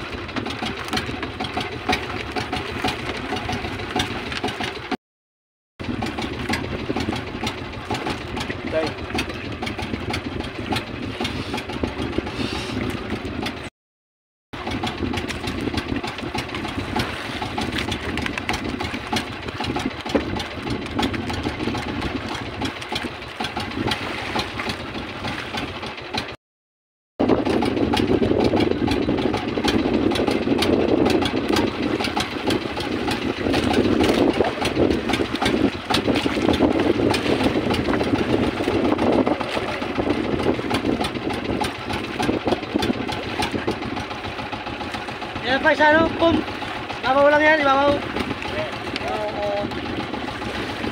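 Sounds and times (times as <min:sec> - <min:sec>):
boat engine running: 0:00.0 - 0:05.0, 0:05.8 - 0:13.7, 0:14.5 - 0:26.4, 0:27.2 - 0:50.9.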